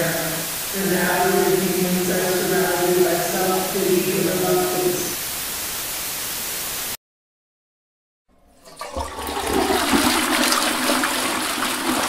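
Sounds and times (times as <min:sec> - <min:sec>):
static hiss: 0:00.0 - 0:07.0
toilet flushing: 0:08.3 - 0:12.0.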